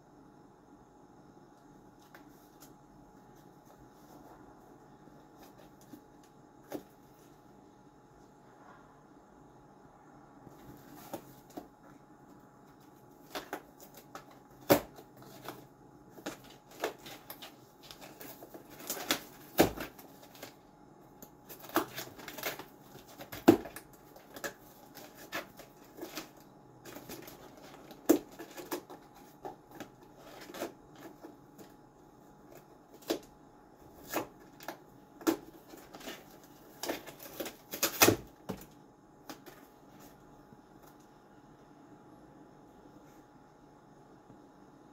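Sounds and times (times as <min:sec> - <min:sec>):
cat clawing cardboard box: 0:12.8 - 0:38.7.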